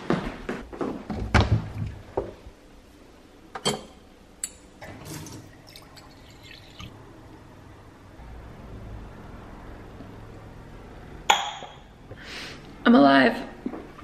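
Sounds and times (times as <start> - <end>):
water running into a glass: 4.9 - 6.9.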